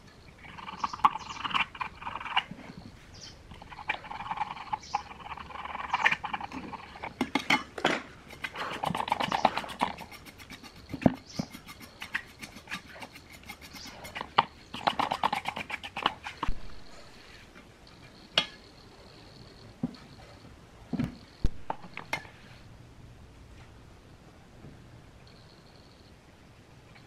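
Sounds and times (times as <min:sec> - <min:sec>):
metal scraper scratching: 0:05.0 - 0:16.5.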